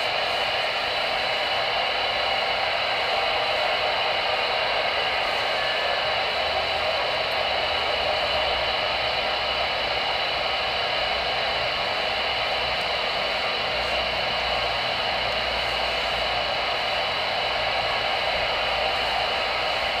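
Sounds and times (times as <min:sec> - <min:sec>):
radio static hiss: 0:00.0 - 0:20.0.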